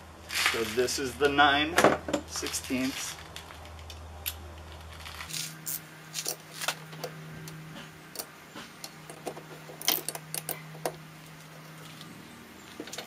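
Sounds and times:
ratchet wrench clicking: 8.2s - 11.0s.

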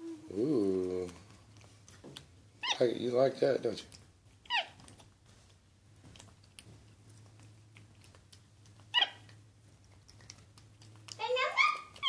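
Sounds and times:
monkey eating clicks: 3.8s - 12.0s.

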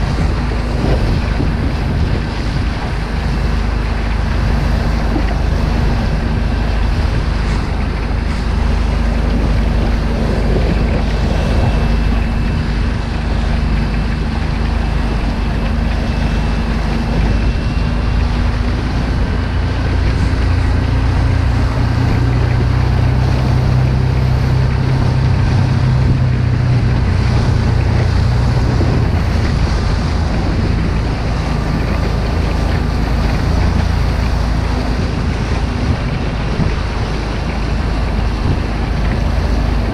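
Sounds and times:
outboard motor running: 0.0s - 39.9s
water slapping hull: 0.0s - 39.9s
wind buffeting microphone: 0.0s - 39.9s.

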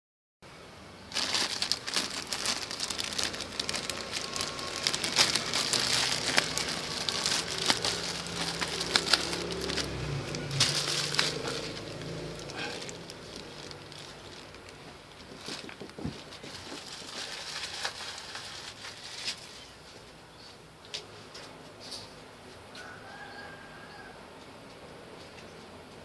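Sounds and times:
plastic bag crinkling: 1.0s - 19.7s.

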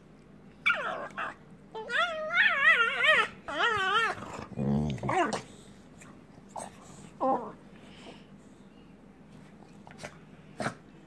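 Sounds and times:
dog yelping: 0.6s - 4.3s
dog whining: 0.6s - 5.5s, 7.2s - 7.6s
dog growling: 0.7s - 5.6s, 6.6s - 7.6s.

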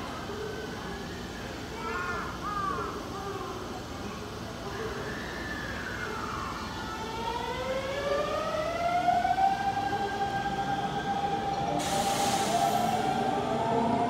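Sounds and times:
burst of hiss: 11.8s - 13.1s.

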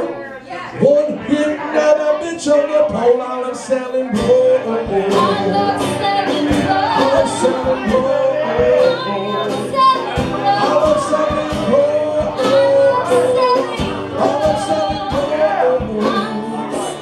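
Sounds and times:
strummed acoustic guitars: 0.8s - 17.0s
drum kit: 4.2s - 17.0s
woman singing into microphone: 4.8s - 17.0s.

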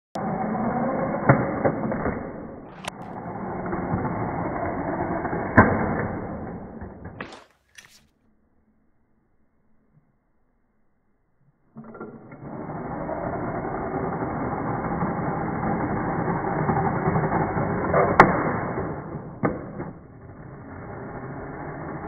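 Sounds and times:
slot car crashing: 1.0s - 7.7s.

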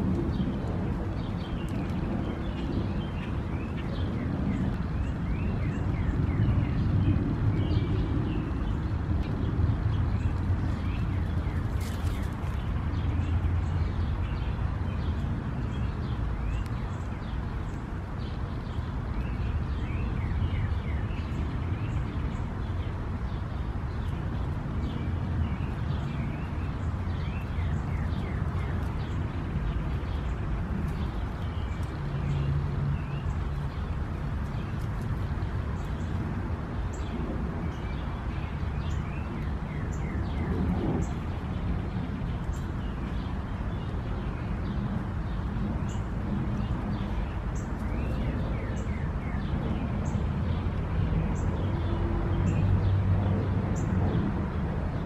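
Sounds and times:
small birds chirping: 0.0s - 54.3s
steady low rumble: 23.8s - 55.0s.

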